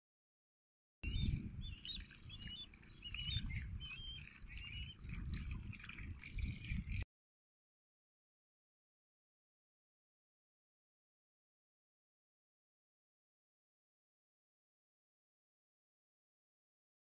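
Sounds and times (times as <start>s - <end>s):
small birds chirping: 1.0s - 7.0s.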